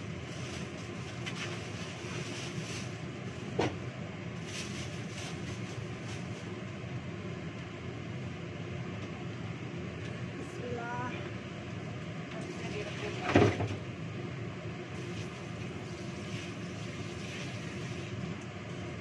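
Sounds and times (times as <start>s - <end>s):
mechanical hum: 0.0s - 19.0s
plastic bag rustling: 4.4s - 6.5s.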